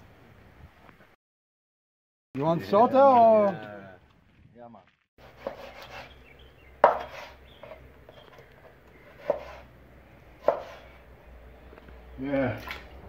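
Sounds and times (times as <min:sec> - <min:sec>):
knife cutting meat on wooden board: 0:05.2 - 0:06.2, 0:06.8 - 0:07.8, 0:09.1 - 0:09.7, 0:10.4 - 0:10.9.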